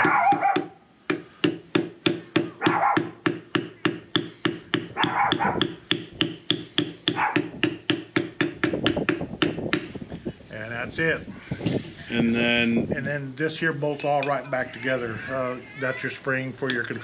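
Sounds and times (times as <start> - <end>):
dog barking: 0.0 - 0.8, 2.6 - 3.2, 5.0 - 5.6, 7.1 - 7.5.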